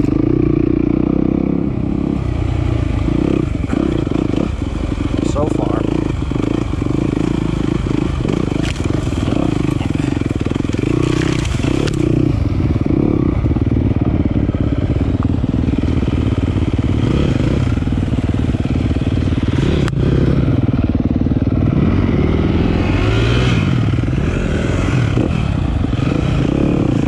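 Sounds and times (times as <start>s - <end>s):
dirt bike engine revving: 0.0s - 27.0s
rocks clattering: 10.6s - 12.1s.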